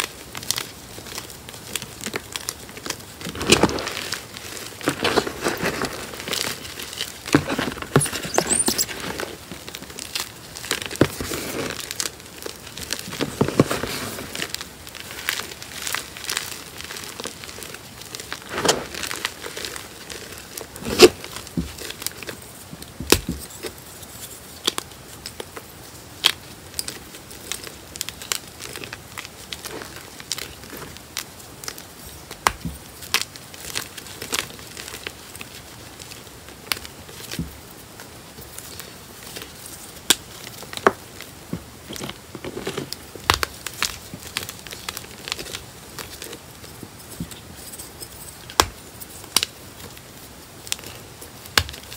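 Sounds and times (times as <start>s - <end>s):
powdery rustling: 2.8s - 22.0s
chalk crunching and snapping: 3.3s - 21.9s.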